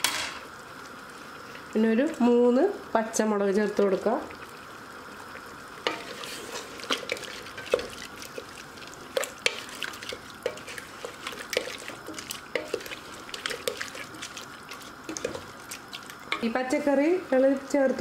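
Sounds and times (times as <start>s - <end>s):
wet squelches of stirring curry: 5.9s - 16.5s.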